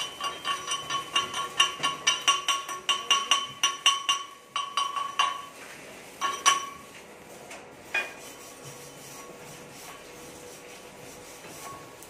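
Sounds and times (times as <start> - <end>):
hammer striking steel pipe: 0.0 - 5.5.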